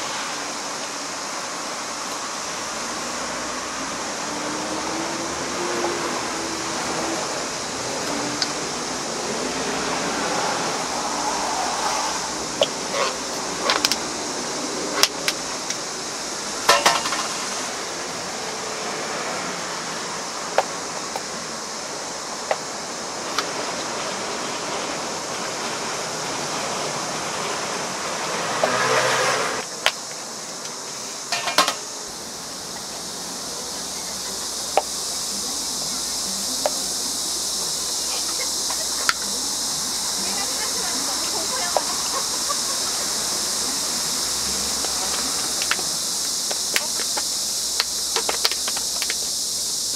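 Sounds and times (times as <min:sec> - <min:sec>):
background hiss: 0:00.0 - 0:49.9
brief rush of noise: 0:09.5 - 0:13.3.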